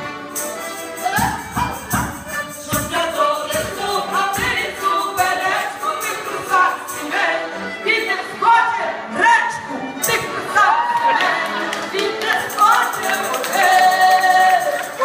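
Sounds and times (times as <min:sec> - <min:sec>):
percussive beat: 0:00.4 - 0:06.7
several voices singing: 0:02.4 - 0:15.0.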